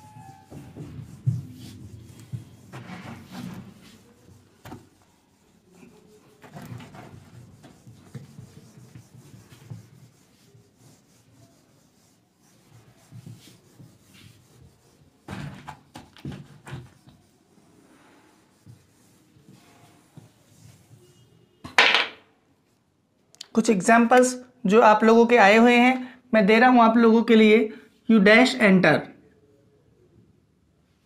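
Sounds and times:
duster rubbing whiteboard: 0.0 - 21.3.

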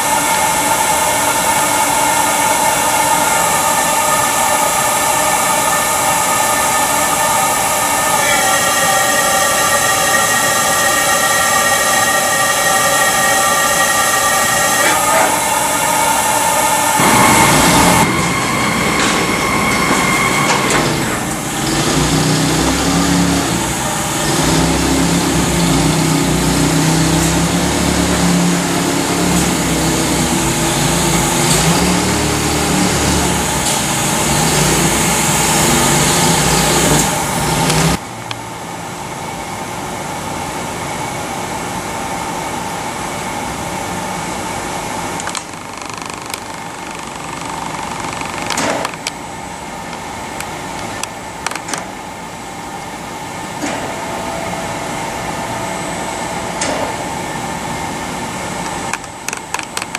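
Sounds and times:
laser cutter machine hum and hiss: 0.0 - 45.8.

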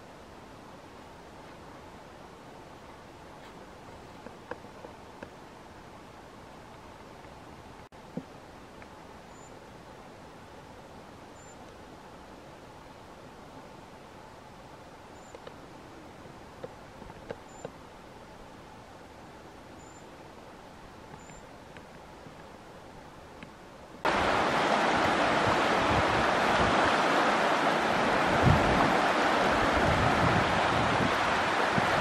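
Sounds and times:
faint ticks: 21.1 - 22.0
fast-flowing river rushing: 24.1 - 32.0.

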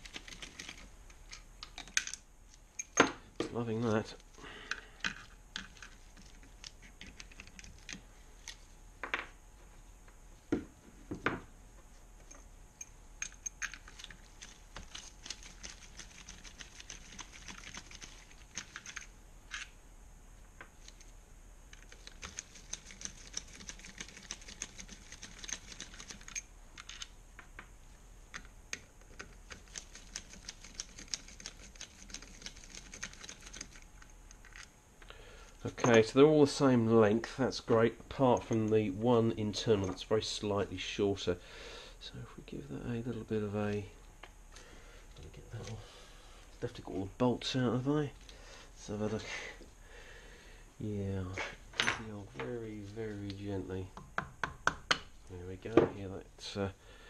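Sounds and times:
tools knocking on wooden bench: 10.5 - 11.5.

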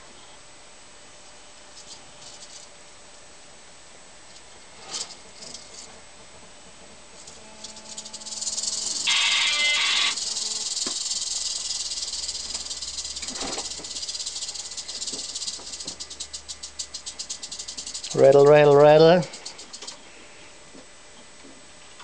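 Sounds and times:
rattlesnake tail rattling: 4.8 - 5.9, 7.2 - 20.2.

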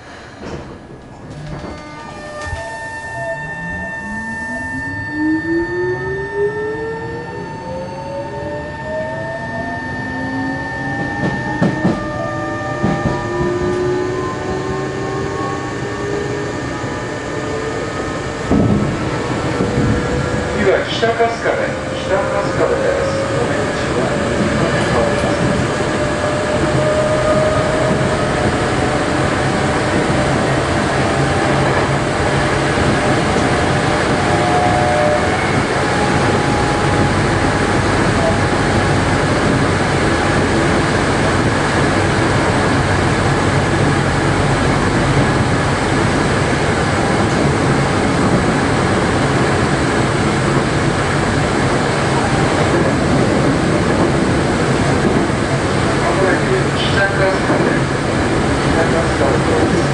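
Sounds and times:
train wheels rumbling on track: 0.0 - 2.7, 6.9 - 59.9
faint high tones: 1.6 - 18.3.

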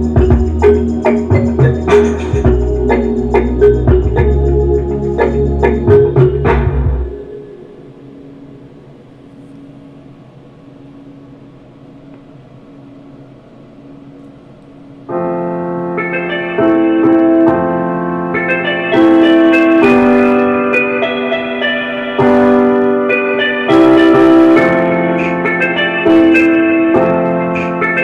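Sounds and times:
electric piano chords: 0.0 - 9.0, 15.0 - 28.0.

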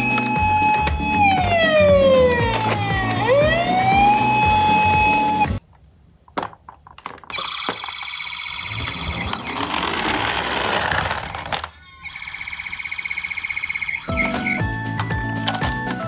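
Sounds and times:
toy electronic siren: 0.0 - 5.6, 7.3 - 14.8
toy wheels rolling on wood: 6.3 - 11.7.

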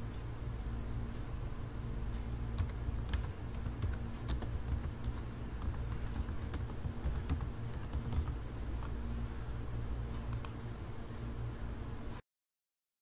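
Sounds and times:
keyboard keystroke clicks: 10.3 - 10.6.

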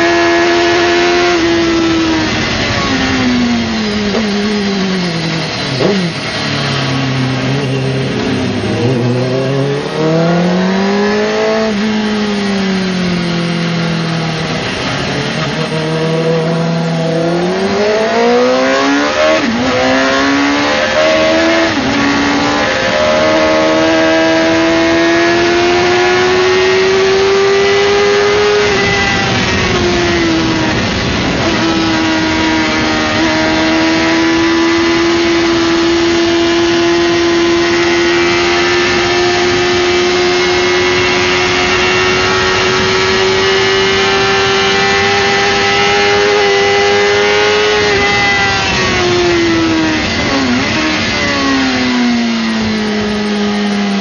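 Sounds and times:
motorcycle engine revving: 0.0 - 54.0
wind rush: 25.2 - 34.2.

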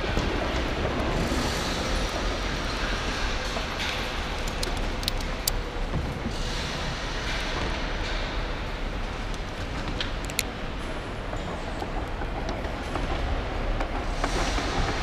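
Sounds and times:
sharp clicks: 3.9 - 5.6, 9.3 - 10.5.

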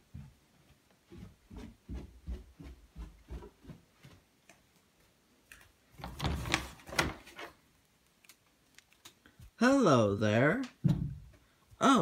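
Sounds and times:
footsteps on carpet: 0.0 - 4.4.

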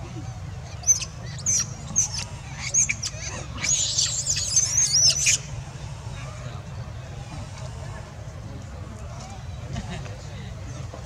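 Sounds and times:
monkeys squealing: 0.7 - 5.5.

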